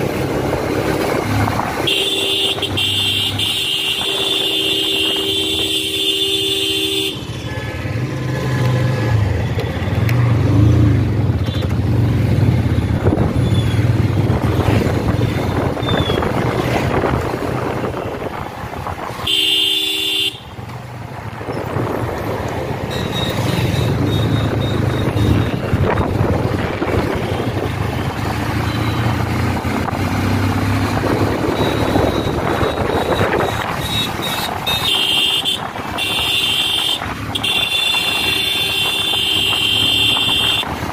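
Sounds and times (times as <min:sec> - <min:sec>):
wind and road noise: 0:00.0 - 0:40.9
vehicle horn: 0:01.8 - 0:07.9, 0:19.2 - 0:20.6, 0:32.7 - 0:40.6.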